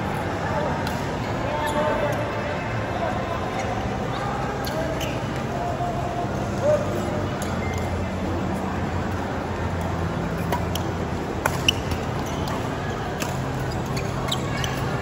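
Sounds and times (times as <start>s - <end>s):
racket striking shuttlecock: 11.4s - 12.0s
shoe squeaks: 11.5s - 12.6s, 13.4s - 15.0s.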